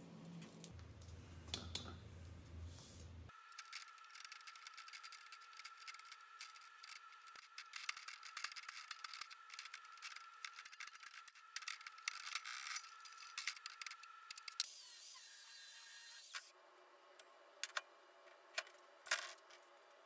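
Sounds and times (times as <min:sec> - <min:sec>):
continuous rasping noise: 0:03.5 - 0:14.6.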